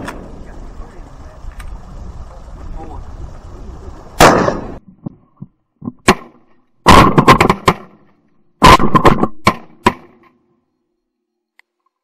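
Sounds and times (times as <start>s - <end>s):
shotgun shots: 4.2s - 4.8s, 6.0s - 8.0s, 8.6s - 10.2s.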